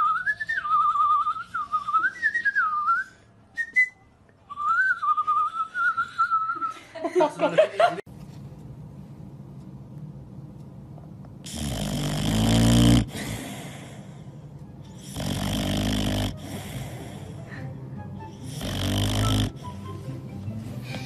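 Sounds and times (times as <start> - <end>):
dog snoring: 11.4 - 14.2, 14.9 - 17.4, 18.4 - 20.0.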